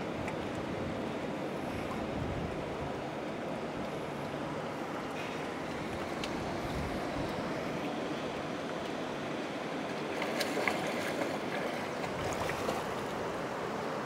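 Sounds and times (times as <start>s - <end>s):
seawater lapping: 0.0s - 14.0s
sharp water splashes: 10.0s - 13.2s.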